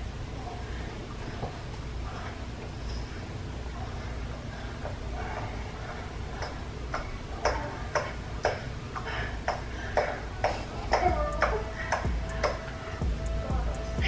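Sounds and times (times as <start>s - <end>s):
low room hum: 0.0s - 14.0s
rhythmic hand slapping: 6.2s - 14.0s.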